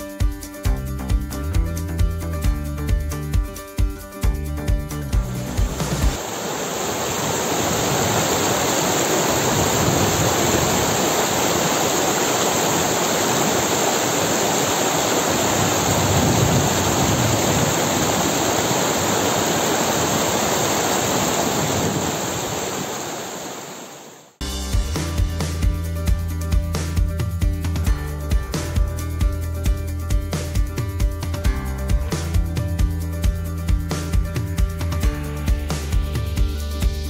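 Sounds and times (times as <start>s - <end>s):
stream rushing over rocks: 5.6s - 24.4s.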